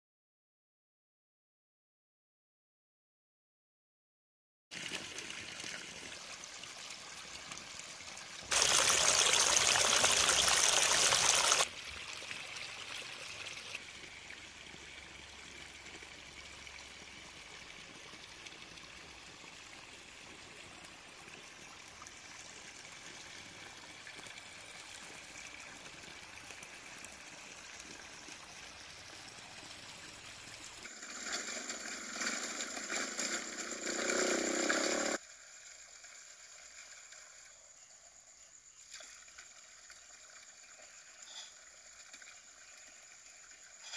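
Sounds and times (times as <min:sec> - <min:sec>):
loud rush of water: 0:08.5 - 0:11.7
water splashing onto rocks: 0:08.5 - 0:11.7.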